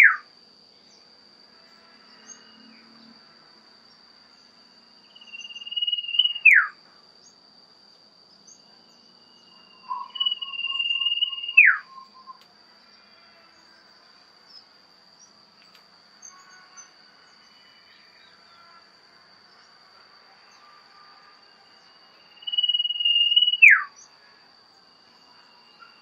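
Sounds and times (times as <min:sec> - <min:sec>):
insect trill: 0:00.0 - 0:26.0
bird whistling: 0:05.2 - 0:06.7, 0:09.7 - 0:12.4, 0:22.4 - 0:23.9
faint chirps: 0:08.4 - 0:13.5.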